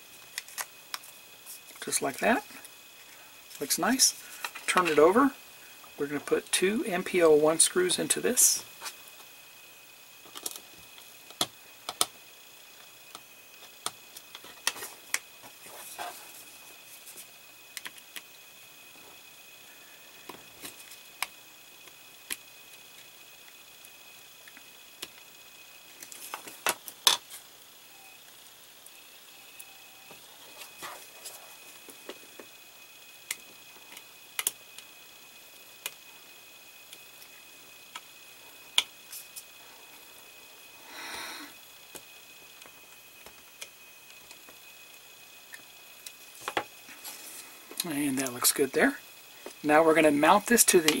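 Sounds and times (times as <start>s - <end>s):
breathy rush of air: 40.8s - 41.6s.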